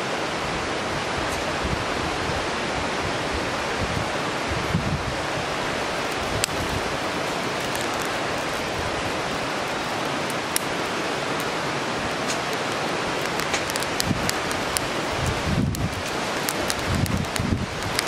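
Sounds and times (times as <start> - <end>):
campfire flames hissing: 4.9 - 18.0
fire crackling: 5.5 - 18.0.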